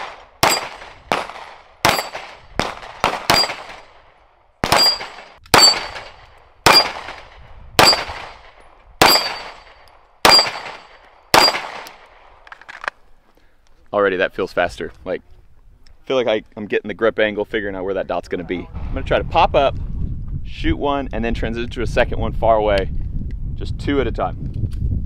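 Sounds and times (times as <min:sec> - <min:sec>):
pistol shots: 0:00.0 - 0:04.0, 0:04.6 - 0:12.2
steel plate target ringing: 0:00.4 - 0:00.8, 0:01.9 - 0:02.2, 0:03.3 - 0:03.7, 0:04.7 - 0:07.0, 0:07.8 - 0:08.1, 0:09.0 - 0:11.7.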